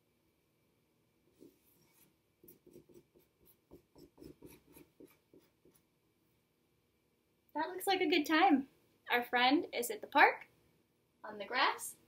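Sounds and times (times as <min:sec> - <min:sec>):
marker drawing on paper: 0:01.4 - 0:05.9.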